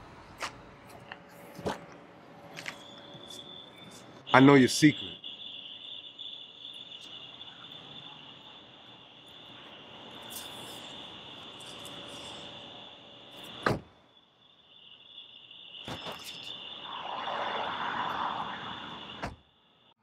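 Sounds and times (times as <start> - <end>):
crickets chirring: 1.0 - 20.0
car door thudding shut: 13.6 - 14.0, 19.2 - 19.4.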